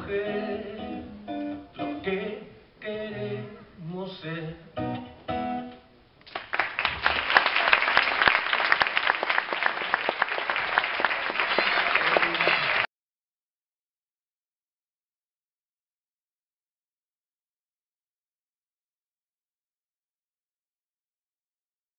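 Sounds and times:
audience applauding: 6.3s - 12.9s.

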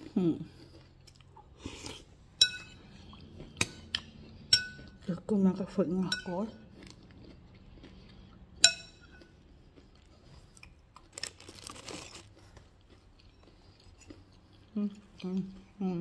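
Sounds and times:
spoon clinking against bowl: 2.4s - 2.8s, 4.5s - 4.8s, 8.6s - 9.2s.

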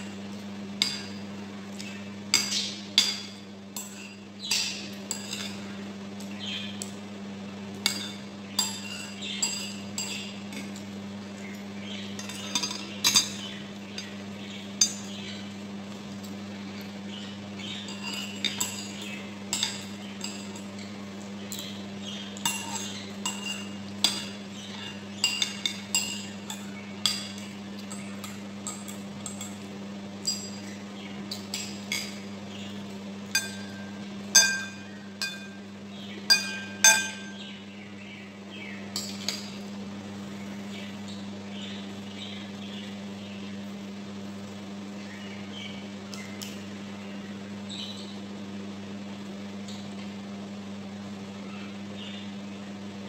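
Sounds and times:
steady low hum: 0.0s - 53.0s
cutlery clinking against a bowl: 0.8s - 5.6s, 7.7s - 11.0s, 11.9s - 14.2s, 17.6s - 20.9s, 22.4s - 29.6s, 30.2s - 35.6s, 36.3s - 37.4s, 39.0s - 39.6s.

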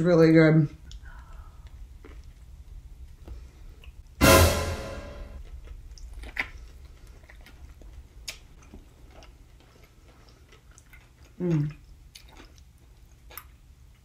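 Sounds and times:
loud hit with ringing tone: 4.2s - 5.4s
mouth chewing noises: 5.5s - 14.0s.

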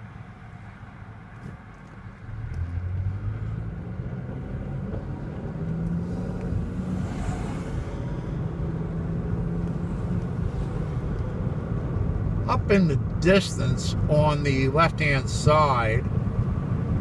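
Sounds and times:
car engine accelerating: 1.4s - 17.0s
truck passing with hiss: 6.0s - 8.6s.

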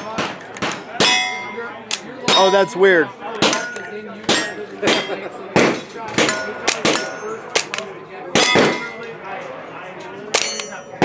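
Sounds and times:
steel targets clanging and ringing: 0.9s - 7.8s, 8.4s - 9.1s, 10.3s - 11.0s
gunshots: 4.3s - 9.0s.

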